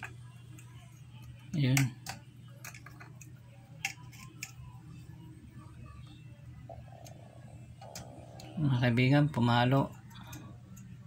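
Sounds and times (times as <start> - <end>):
probe tips clicking and scraping: 0.0 - 4.7, 9.9 - 11.0
low steady hum: 0.0 - 11.0.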